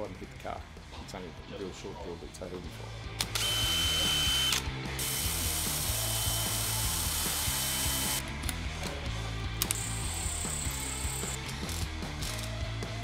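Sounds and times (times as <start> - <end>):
cordless drill whining: 3.3 - 8.2, 9.7 - 11.4.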